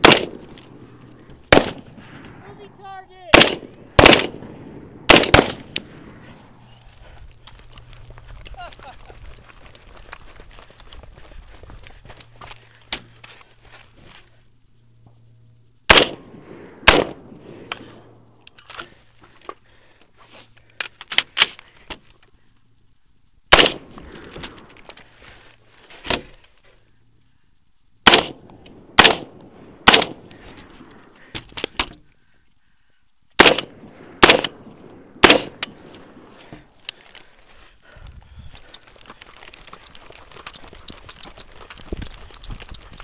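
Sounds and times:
faint gunshots: 0.0s - 0.5s, 1.5s - 2.6s, 3.3s - 6.1s, 15.9s - 17.9s, 23.5s - 24.0s, 28.0s - 30.3s, 33.4s - 34.6s, 35.2s - 35.7s
rifle gunshots: 0.0s - 0.8s, 1.5s - 2.3s, 3.3s - 6.2s, 15.9s - 17.9s, 23.5s - 24.3s, 28.0s - 30.3s, 33.4s - 36.3s.

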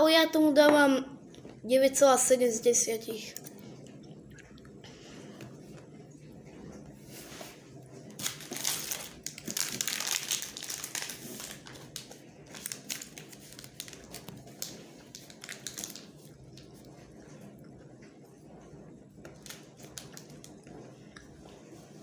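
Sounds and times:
wrapper crinkling: 8.2s - 16.7s.

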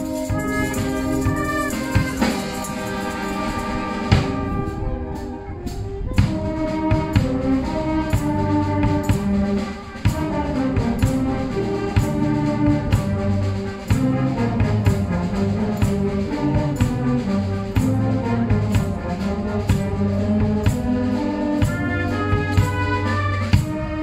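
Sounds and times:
brass holding chords: 0.0s - 24.0s
drum-kit beats: 0.0s - 24.0s.

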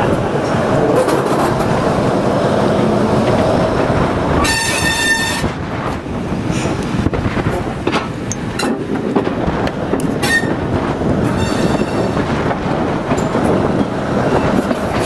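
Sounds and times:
train wheels and engine rumbling: 0.0s - 15.0s
train horn toot: 4.4s - 5.6s, 11.4s - 12.2s.

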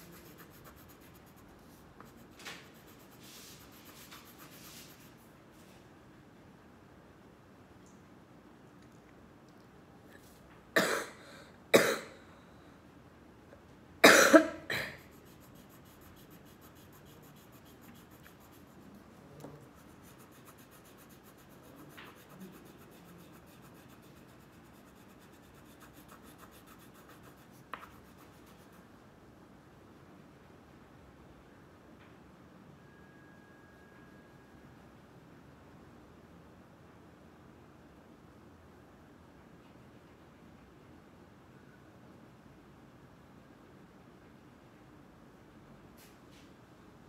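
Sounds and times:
crayon strokes on paper: 0.0s - 5.3s, 15.0s - 28.8s
person coughing: 10.8s - 12.2s, 14.0s - 15.1s.

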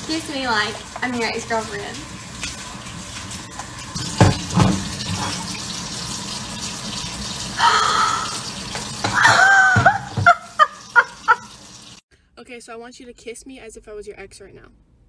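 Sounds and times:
tap running into sink: 3.2s - 5.8s, 8.6s - 11.4s
woman shrieking: 7.6s - 10.2s.

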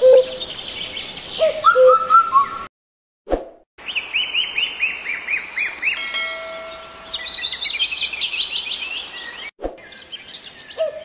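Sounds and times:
birds chirping and singing: 0.0s - 2.7s, 3.8s - 11.0s
bell-like ding: 6.0s - 7.8s.

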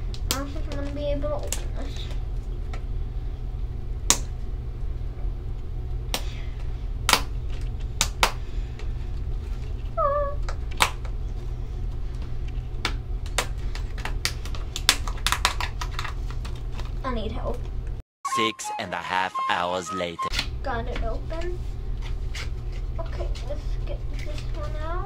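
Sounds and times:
steady low hum: 0.0s - 14.8s.

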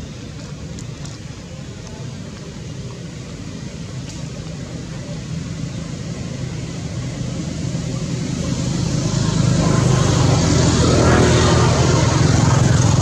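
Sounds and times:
passing vehicle engine: 5.7s - 13.0s.

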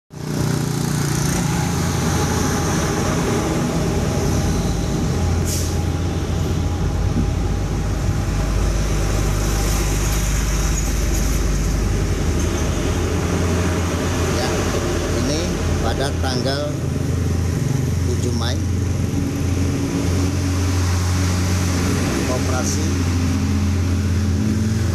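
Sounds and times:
trucks engine rumble: 0.1s - 24.9s
short hiss: 5.5s - 5.8s.

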